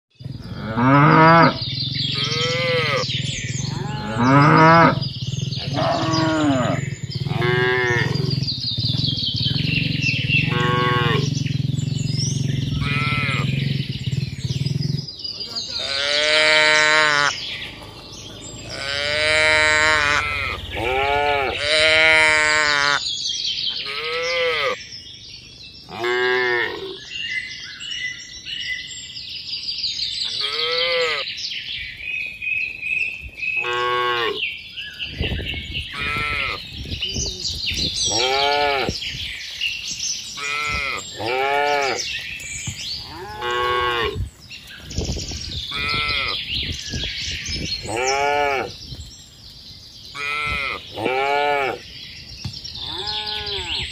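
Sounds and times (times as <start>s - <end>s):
cattle mooing: 0.5s - 14.0s, 15.6s - 23.1s, 23.8s - 24.8s, 33.6s - 34.4s, 36.0s - 36.6s, 38.0s - 39.0s, 40.4s - 42.1s, 43.0s - 44.2s, 45.7s - 46.4s, 47.8s - 48.8s, 50.2s - 51.8s, 52.8s - 53.9s.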